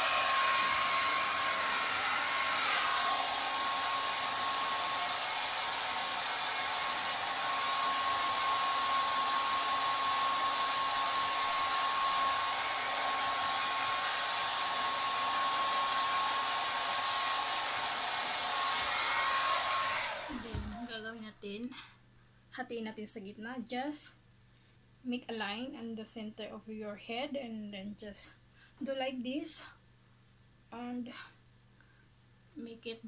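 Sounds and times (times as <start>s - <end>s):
hair dryer running: 0.0s - 21.0s.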